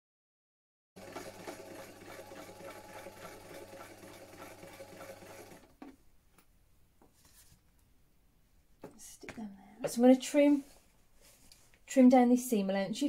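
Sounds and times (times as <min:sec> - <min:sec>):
sewing machine running: 0:01.0 - 0:05.9.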